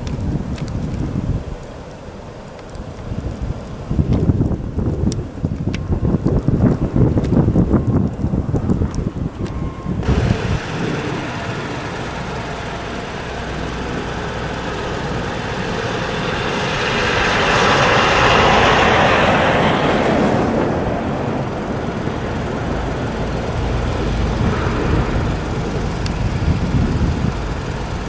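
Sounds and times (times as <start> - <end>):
rushing noise: 5.2 - 28.0
diesel locomotives running: 5.8 - 28.0.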